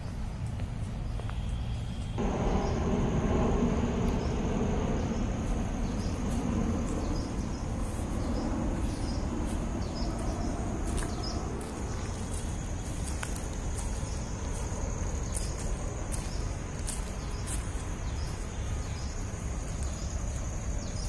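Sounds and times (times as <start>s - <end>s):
low rumbling noise: 0.0s - 21.0s
high-pitched insect trill: 1.1s - 21.0s.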